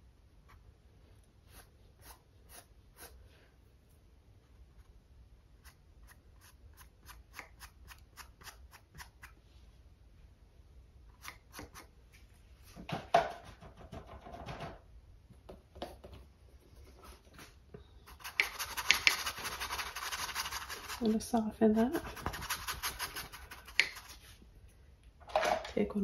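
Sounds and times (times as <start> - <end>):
paintbrush ticking on canvas: 18.1 - 21.1, 22.0 - 24.2
bristles scrubbing on canvas: 18.1 - 21.2, 21.9 - 24.4.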